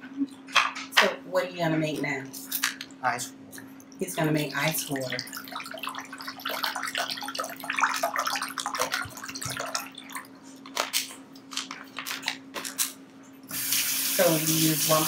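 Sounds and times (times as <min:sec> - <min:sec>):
water pouring into a bowl: 0:04.4 - 0:10.3.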